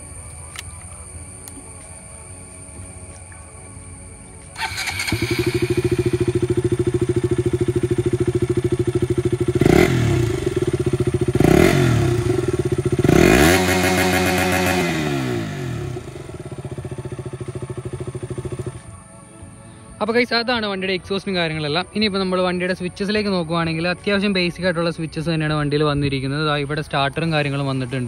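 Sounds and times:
motorcycle engine idling and revving: 0:04.5 - 0:18.9.

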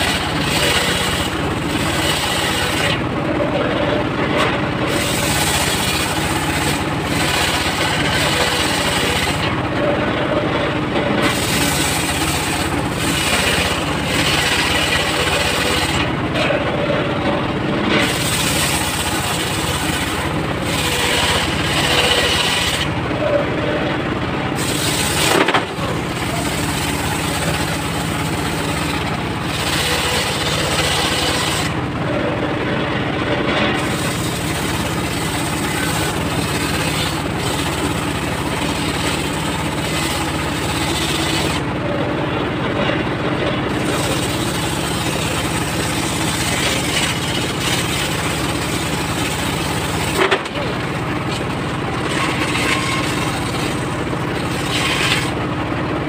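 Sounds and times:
circular saw cutting wood: 0:00.0 - 0:32.6, 0:33.2 - 0:42.1, 0:42.8 - 0:55.6
engine running: 0:00.0 - 0:56.0.

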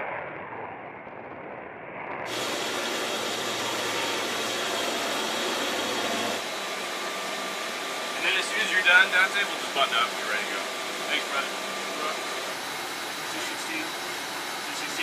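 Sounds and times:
jet engine roar: 0:00.0 - 0:15.0
bright hiss with high whine: 0:02.3 - 0:06.5.

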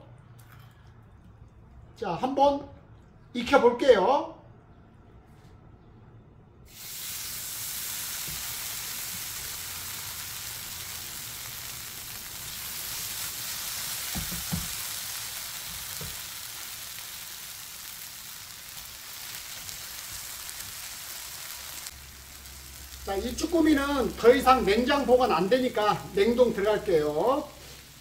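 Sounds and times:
octopus sizzling in a hot wok: 0:06.7 - 0:28.0.

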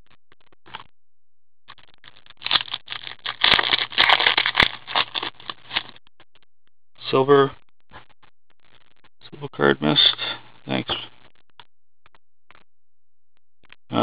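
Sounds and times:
trading cards shuffling: 0:02.4 - 0:05.9.

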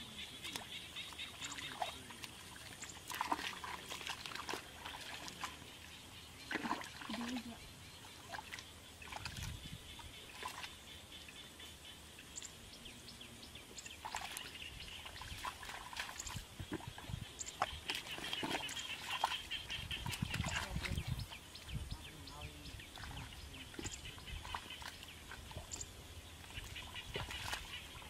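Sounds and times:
squelching and splashing in mud: 0:00.4 - 0:05.9, 0:06.5 - 0:07.6, 0:08.2 - 0:09.6, 0:14.0 - 0:21.2, 0:22.8 - 0:28.0
sloshing steps: 0:01.2 - 0:05.6.

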